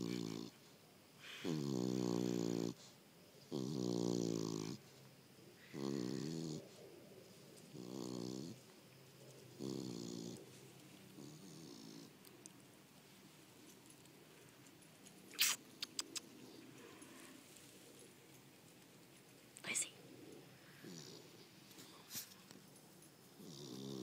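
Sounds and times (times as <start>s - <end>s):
dog snoring: 0.0s - 0.6s, 1.2s - 5.0s, 5.6s - 6.8s, 7.7s - 8.6s, 9.6s - 10.4s, 11.1s - 12.2s, 20.8s - 21.4s, 23.4s - 24.0s.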